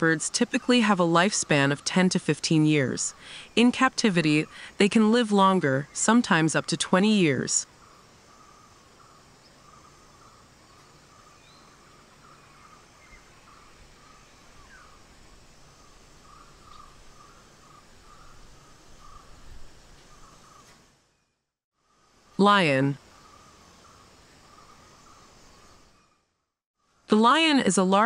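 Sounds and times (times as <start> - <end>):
higher bird chirps and calls: 5.4 - 15.0, 15.7 - 20.8.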